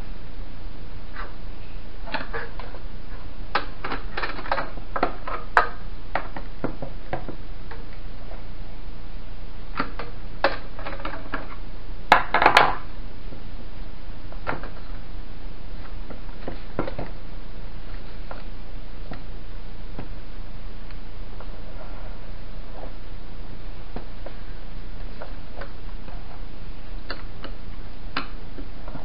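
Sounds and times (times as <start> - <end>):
steady low hum: 0.0 - 12.2, 12.8 - 29.0.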